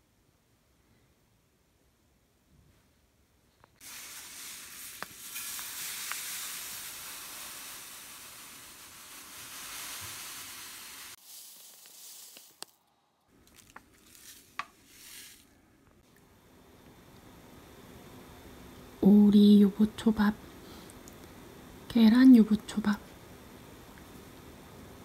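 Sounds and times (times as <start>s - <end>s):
salt pouring into container: 3.8s - 12.8s, 13.5s - 15.5s
rustling: 9.1s - 15.6s.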